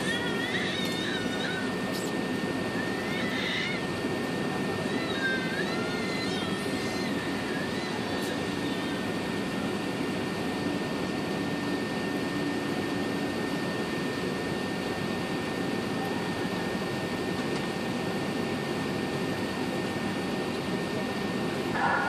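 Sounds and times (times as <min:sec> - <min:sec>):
jet engines and air-conditioning rush: 0:00.0 - 0:22.0
faint high whine: 0:20.9 - 0:22.0.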